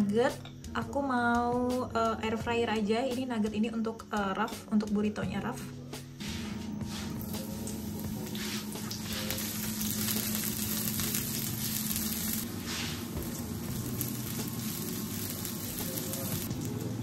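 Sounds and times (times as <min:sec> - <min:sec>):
food sizzling in a pan: 0:06.3 - 0:17.0.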